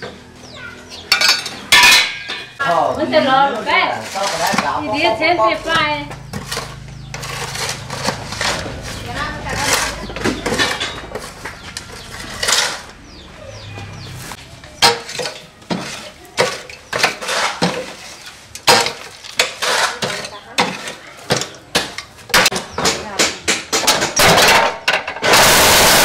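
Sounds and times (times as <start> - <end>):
tool scraping concrete on metal tray: 1.5 - 13.0, 14.0 - 22.1.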